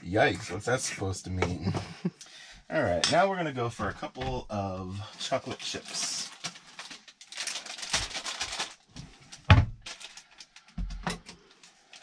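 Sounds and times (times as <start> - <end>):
packaging rustling: 5.5 - 10.8.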